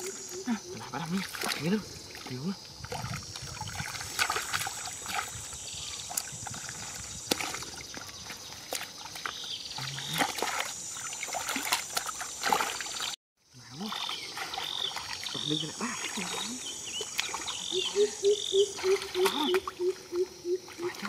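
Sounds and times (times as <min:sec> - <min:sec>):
hands splashing in shallow water: 0:01.2 - 0:05.5, 0:06.1 - 0:13.2, 0:13.8 - 0:17.6.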